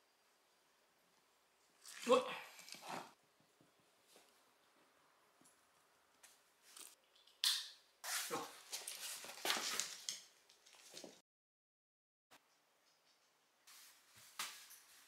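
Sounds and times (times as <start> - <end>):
rustling and scuffling: 8.0 - 11.2, 13.7 - 15.0.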